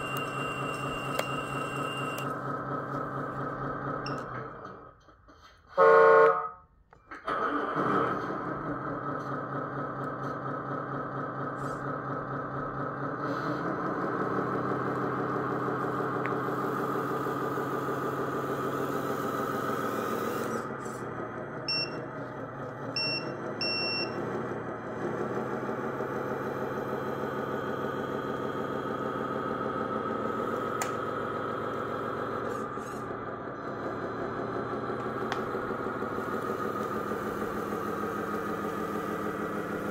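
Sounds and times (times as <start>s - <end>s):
simulated diesel engine running: 0.0s - 39.9s
loud horn blast: 5.8s - 6.7s.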